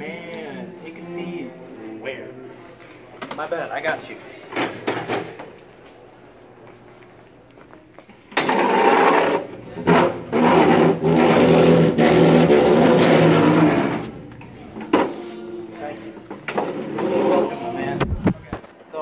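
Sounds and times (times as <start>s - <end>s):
buzzing chair leg scrape: 8.4s - 14.2s, 16.3s - 18.0s
chair dragged across hard floor: 8.4s - 14.2s, 16.4s - 17.8s.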